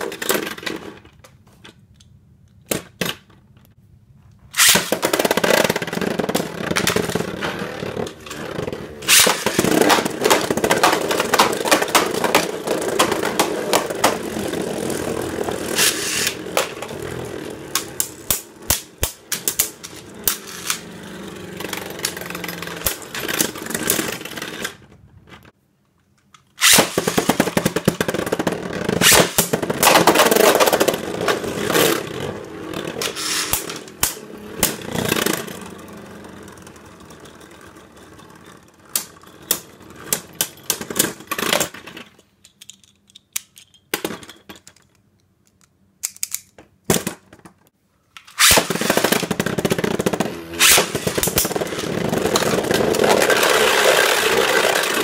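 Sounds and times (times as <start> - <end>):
spinning tops clashing clicks: 4.6 - 7.2, 9.0 - 20.9, 33.0 - 34.9
spinning tops whirring on plastic: 4.6 - 24.8, 26.6 - 41.4, 48.3 - 55.0.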